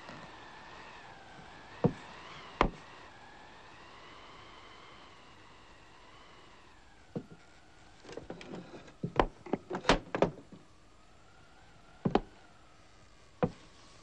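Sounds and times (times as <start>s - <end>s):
sharp knocks and clicks: 12.1s - 12.4s.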